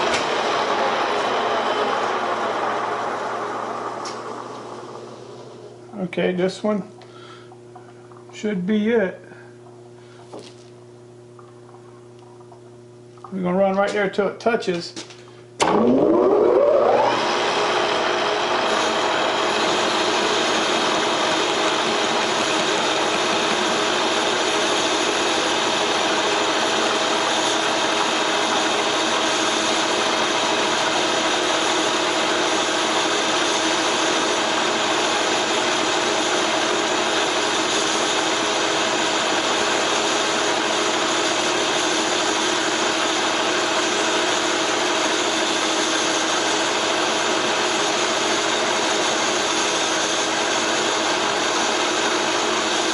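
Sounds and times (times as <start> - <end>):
metal lathe gear whine: 15.6 - 52.9.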